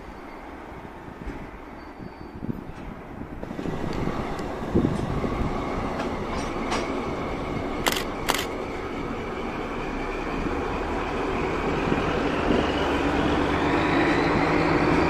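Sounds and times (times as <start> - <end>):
diesel locomotive running: 0.0 - 15.0
train wheels rolling: 2.7 - 9.6
sharp metallic clicks: 7.8 - 8.5.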